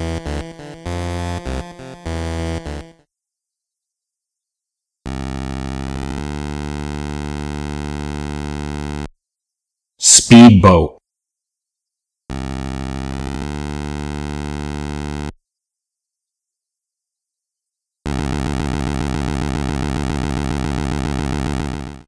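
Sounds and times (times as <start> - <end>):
fluttering synth buzz: 0.0 - 3.0, 5.1 - 9.1, 12.3 - 15.3, 18.1 - 22.0
buzzy synthesizer tone: 18.1 - 22.0.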